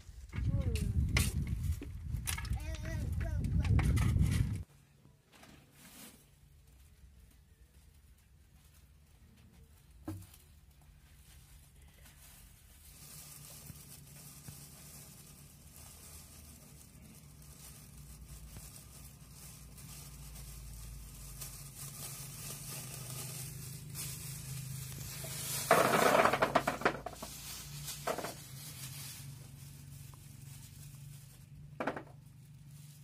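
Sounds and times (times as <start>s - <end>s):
plastic bag rustling: 5.4s - 33.0s
hard balls clattering into basin: 25.4s - 27.4s.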